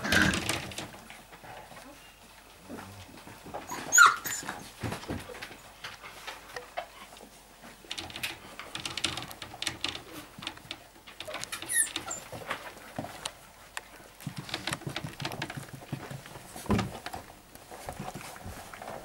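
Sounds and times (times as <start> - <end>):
puppies pattering on blanket: 0.1 - 19.0
puppy squeak: 3.7 - 4.6, 11.6 - 12.3.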